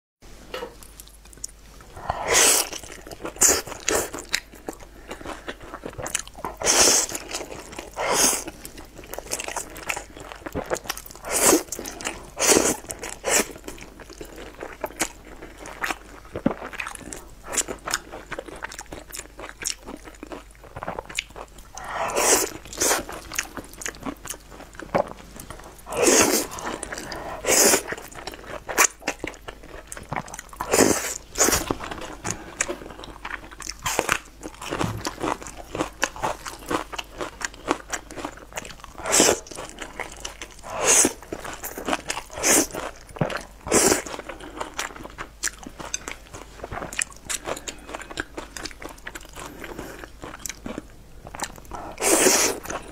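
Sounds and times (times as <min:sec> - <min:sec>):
wet chewing and lip smacking: 0:00.8 - 0:52.9
loud noodle slurp: 0:02.2 - 0:02.8, 0:22.0 - 0:23.1, 0:25.9 - 0:28.0, 0:40.7 - 0:41.2, 0:52.0 - 0:52.6.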